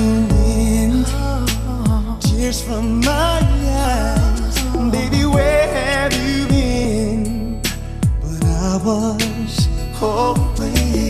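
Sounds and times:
slow pop song: 0.0 - 11.0.

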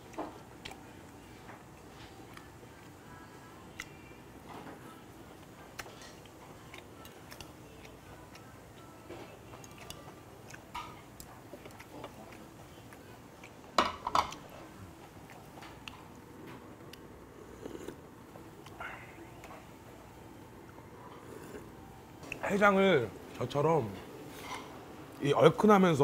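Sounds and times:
person chewing: 5.6 - 13.7, 14.3 - 19.8, 20.7 - 22.4.

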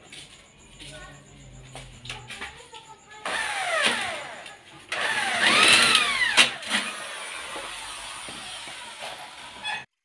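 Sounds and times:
electric drill whining into metal: 3.2 - 9.9
drill click: 3.3 - 9.0.

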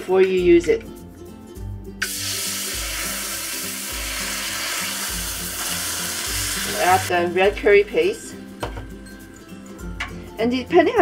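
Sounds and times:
coconut milk sizzling in hot pan: 2.0 - 7.1.

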